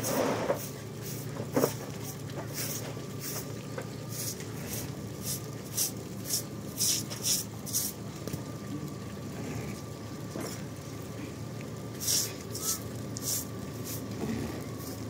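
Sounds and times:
broom sweeping wet floor: 0:00.0 - 0:08.0, 0:12.0 - 0:15.0.

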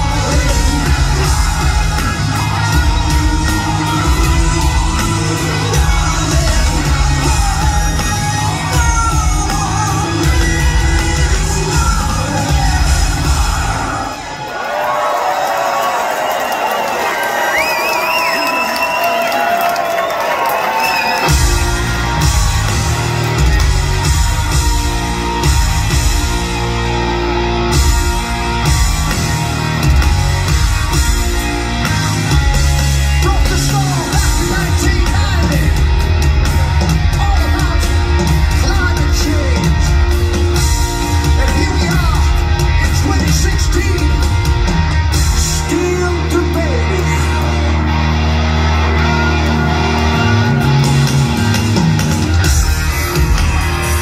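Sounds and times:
man singing lead vocal: 0:00.0 - 0:14.3, 0:33.2 - 0:36.0, 0:37.1 - 0:40.1, 0:41.3 - 0:44.4
bass: 0:00.0 - 0:14.4, 0:20.9 - 0:54.0
electric guitars: 0:00.0 - 0:14.4, 0:20.7 - 0:54.0
drums: 0:00.0 - 0:54.0.

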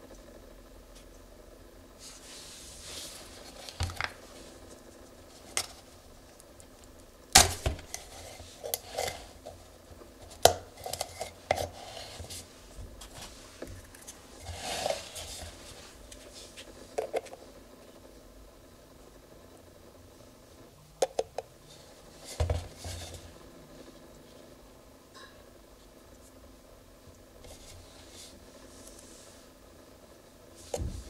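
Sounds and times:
small scrapes and rustles: 0:02.0 - 0:06.0, 0:07.8 - 0:17.4, 0:21.7 - 0:23.4, 0:27.4 - 0:29.5.

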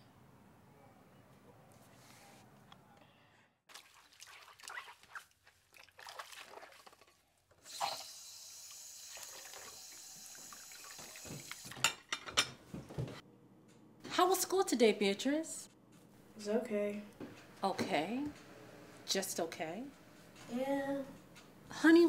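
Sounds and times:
faucet water running into sink: 0:07.7 - 0:12.0.

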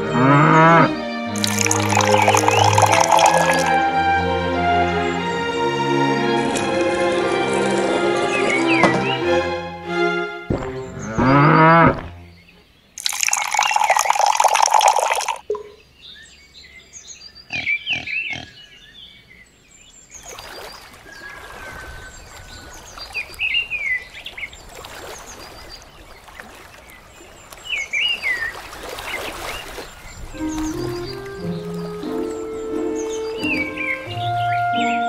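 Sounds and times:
water pouring into trough: 0:01.3 - 0:03.8, 0:13.0 - 0:15.6
faint watery noise: 0:01.3 - 0:04.0, 0:10.5 - 0:16.1, 0:19.7 - 0:35.0.

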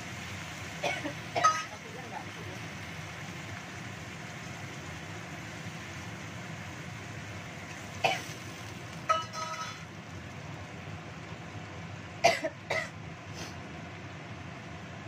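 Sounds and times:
gas burner hissing: 0:00.0 - 0:15.0
person coughing: 0:00.8 - 0:01.7, 0:12.2 - 0:12.9.

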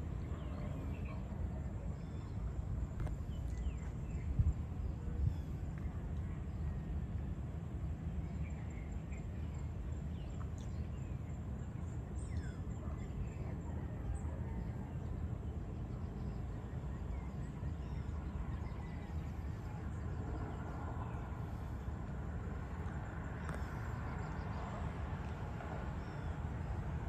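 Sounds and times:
steady low rumble: 0:00.0 - 0:27.0.

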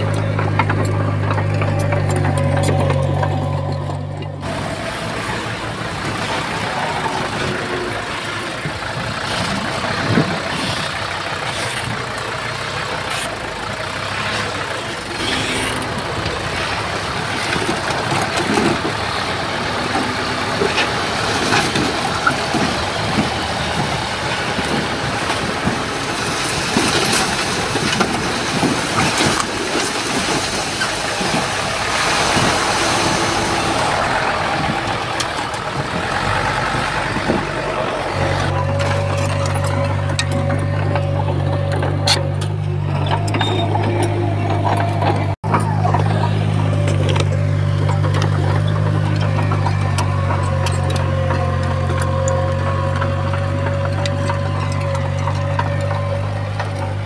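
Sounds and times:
metal clanks and knocks: 0:00.0 - 0:04.6, 0:34.3 - 0:57.0
diesel engine running: 0:00.0 - 0:57.0.

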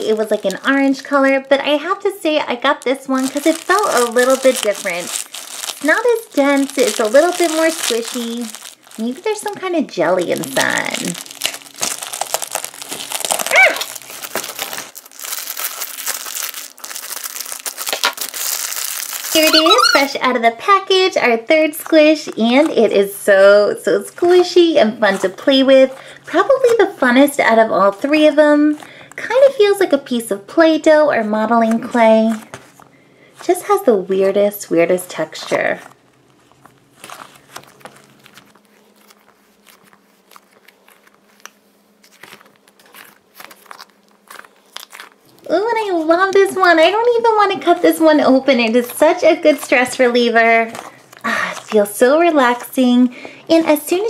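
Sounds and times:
plastic wrapper crinkling: 0:00.0 - 0:20.2, 0:35.4 - 0:54.0
stress ball squishing: 0:02.8 - 0:20.2, 0:36.3 - 0:46.3.

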